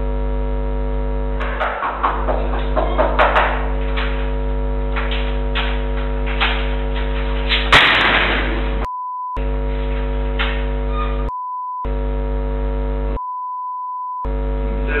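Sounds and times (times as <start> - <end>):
electrical hum: 0.0 - 13.2, 14.2 - 15.0
censor bleep: 13.2 - 14.4.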